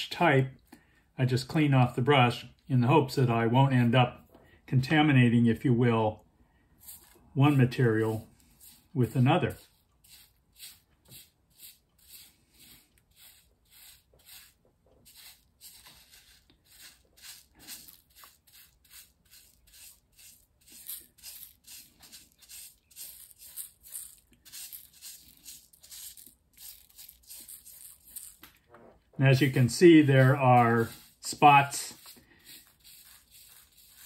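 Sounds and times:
brush sweeping gravel: 0:06.8 - 0:28.4, 0:29.2 - 0:34.0.

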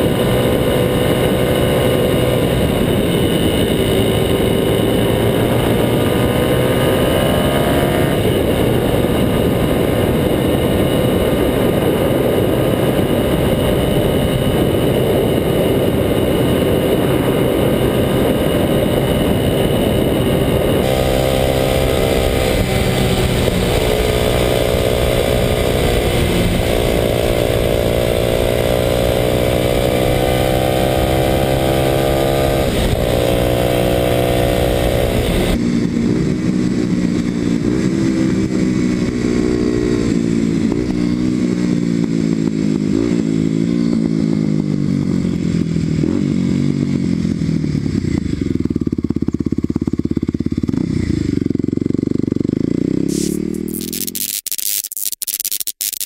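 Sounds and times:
wind rush: 0:00.0 - 0:30.1
motorcycle engine riding: 0:00.0 - 0:56.0.

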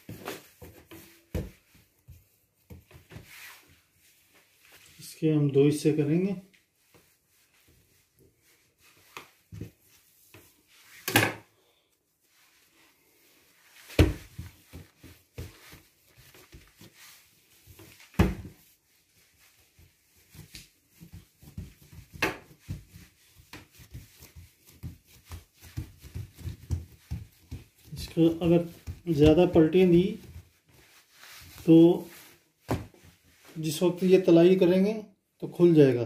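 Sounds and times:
hand patting dough: 0:00.0 - 0:03.7, 0:12.3 - 0:34.6.

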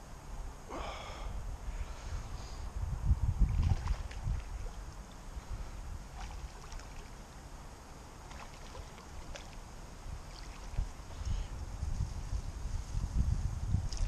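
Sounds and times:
wind rumbling on microphone: 0:00.0 - 0:14.0
faint splashes at water surface: 0:03.5 - 0:05.2, 0:06.1 - 0:07.2, 0:08.2 - 0:11.4.

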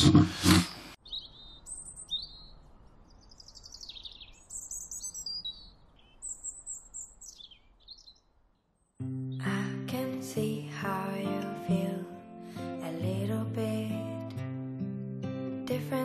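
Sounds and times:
bird chirps and whistled trills: 0:00.7 - 0:08.3.

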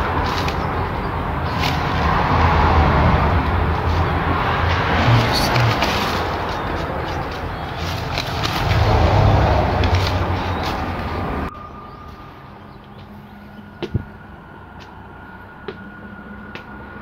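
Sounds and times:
loud low rumble: 0:00.0 - 0:17.0
old newspaper crinkling: 0:04.8 - 0:11.4.

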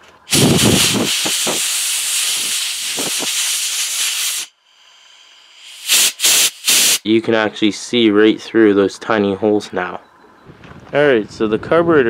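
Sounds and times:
compressed air blow gun hissing: 0:00.3 - 0:07.1.

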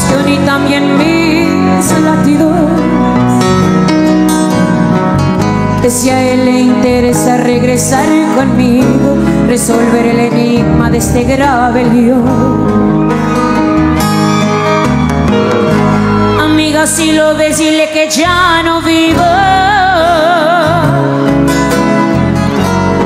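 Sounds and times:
woman singing into a microphone: 0:00.0 - 0:03.5, 0:05.8 - 0:13.2, 0:16.3 - 0:21.4
acoustic guitar: 0:00.0 - 0:23.0.

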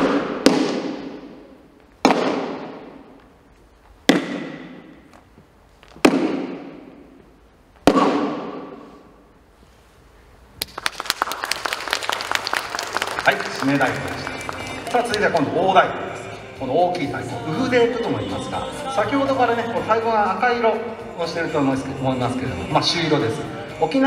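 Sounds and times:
applause: 0:10.6 - 0:15.5.

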